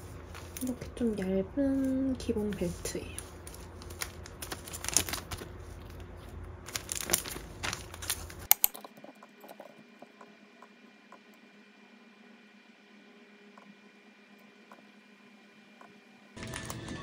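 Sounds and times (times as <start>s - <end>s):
paper packaging rustling: 0.0s - 8.5s, 16.4s - 17.0s.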